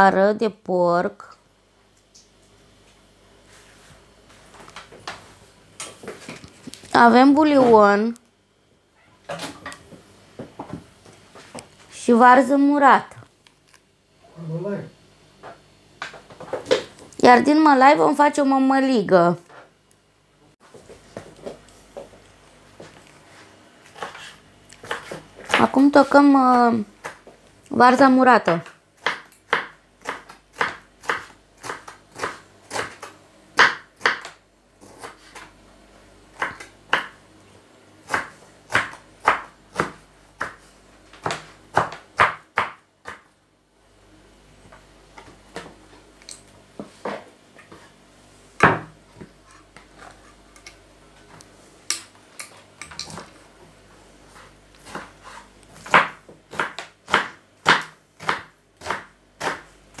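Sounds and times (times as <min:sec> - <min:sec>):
knife chopping on wooden board: 0:24.0 - 0:25.7, 0:28.5 - 0:35.5, 0:36.4 - 0:37.2, 0:38.1 - 0:40.6, 0:41.2 - 0:43.3, 0:48.6 - 0:49.0, 0:54.4 - 1:00.0.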